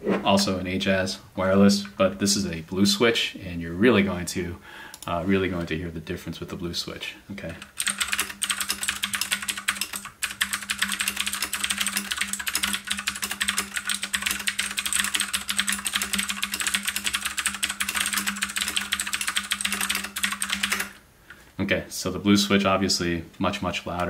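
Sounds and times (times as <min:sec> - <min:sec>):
mechanical keyboard clicks: 0:07.6 - 0:21.0.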